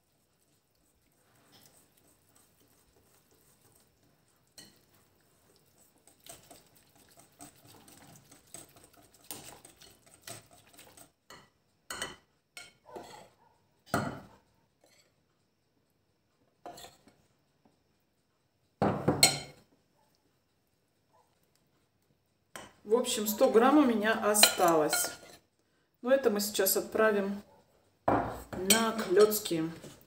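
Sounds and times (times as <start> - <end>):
whisk scraping bowl: 0.0 - 13.3, 22.6 - 25.5, 28.6 - 30.0
metal spoon knocking bowl: 28.1 - 29.4.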